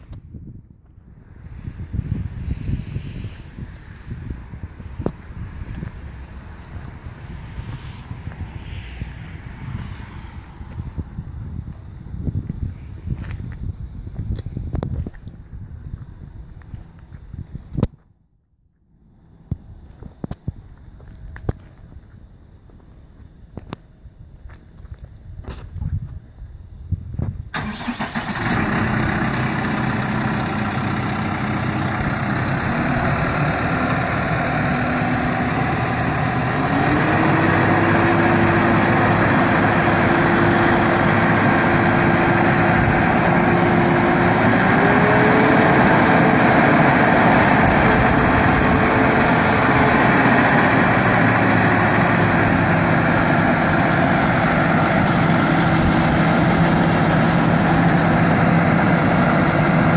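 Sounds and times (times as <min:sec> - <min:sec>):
tractor diesel engine revving: 0:27.6 - 0:59.9.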